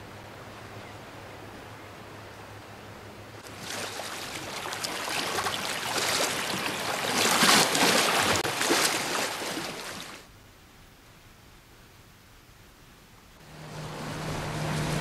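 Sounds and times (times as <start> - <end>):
water splashing over stones: 3.4 - 10.3.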